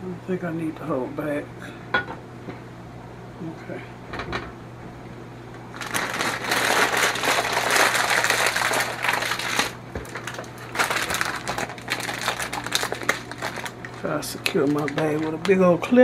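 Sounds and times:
plastic bag crinkling: 0:05.7 - 0:15.8.

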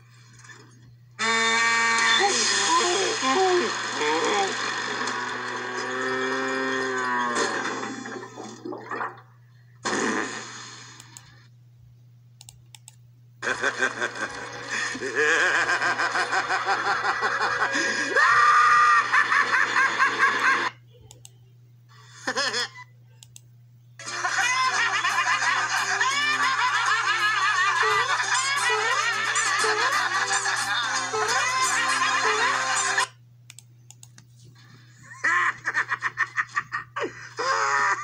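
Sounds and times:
low hum from speakers: 0:00.0 - 0:38.0
cartoon sound effect: 0:01.2 - 0:03.5
maniacal laugh: 0:13.4 - 0:20.8, 0:22.1 - 0:22.8, 0:24.0 - 0:33.1, 0:35.0 - 0:38.0.

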